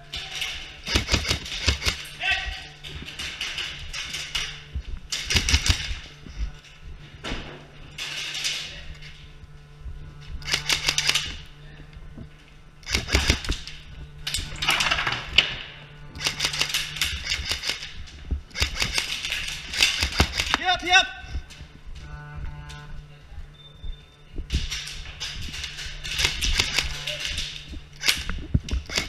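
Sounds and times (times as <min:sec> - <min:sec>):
airsoft guns firing full-auto: 0:00.8 - 0:02.1, 0:05.2 - 0:05.9, 0:12.8 - 0:13.6, 0:18.5 - 0:20.6.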